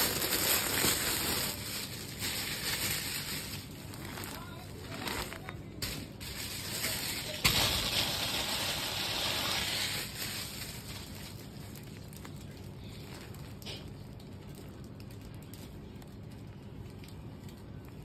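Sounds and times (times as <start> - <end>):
cloth rustling: 0.0 - 7.4.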